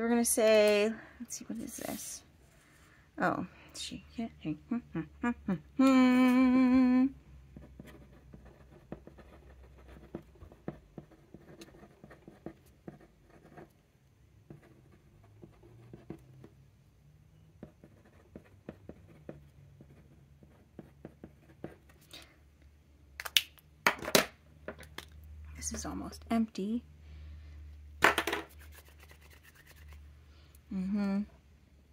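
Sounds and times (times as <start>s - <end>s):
person humming: 4.5s - 7.2s
pen nib scratching paper: 7.6s - 13.7s, 28.5s - 30.0s
pens set down knocking: 23.8s - 25.0s, 28.0s - 28.5s.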